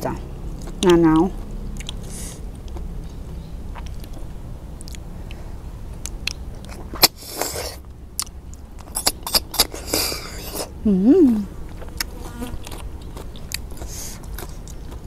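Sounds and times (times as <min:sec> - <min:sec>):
chewing: 0:00.5 - 0:05.4, 0:11.6 - 0:15.0.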